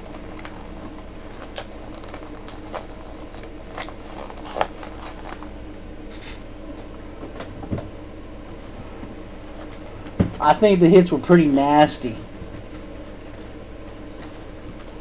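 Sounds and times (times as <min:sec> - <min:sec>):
handling noises: 0:00.0 - 0:07.8
low room hum: 0:00.0 - 0:15.0.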